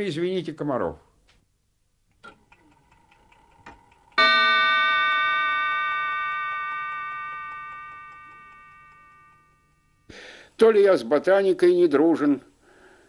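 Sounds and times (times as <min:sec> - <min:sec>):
bell-like chime: 0:04.2 - 0:10.1.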